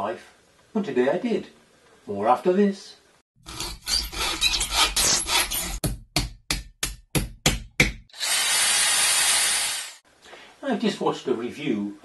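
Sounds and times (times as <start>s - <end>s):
tool rasping and scraping: 3.4s - 5.8s.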